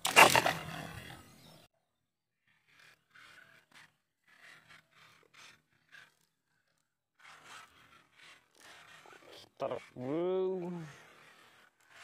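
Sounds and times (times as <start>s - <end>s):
faint scraping strokes: 2.5s - 12.0s.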